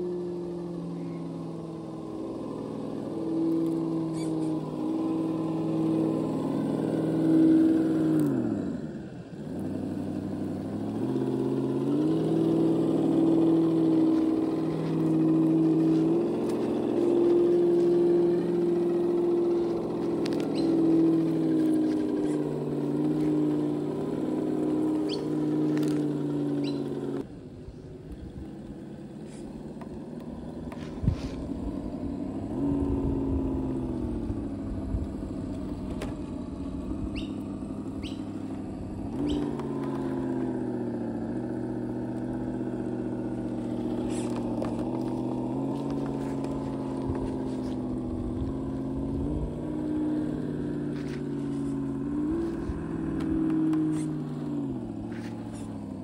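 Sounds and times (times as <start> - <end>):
toy car electric motor whining: 0.0 - 27.3, 28.0 - 56.0.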